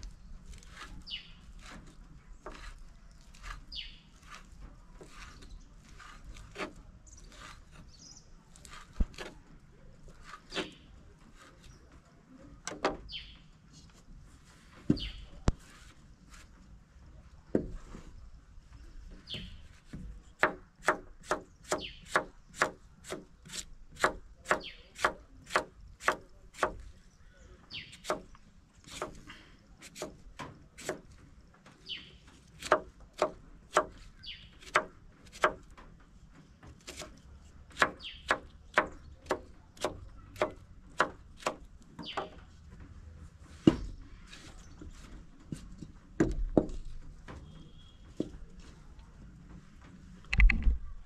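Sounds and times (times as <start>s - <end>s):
knife chopping on wooden board: 1.6s - 3.6s, 19.9s - 26.8s, 28.0s - 28.3s, 28.9s - 29.2s, 29.8s - 30.2s, 30.8s - 31.0s, 32.6s - 34.0s, 34.6s - 35.6s, 37.7s - 42.3s.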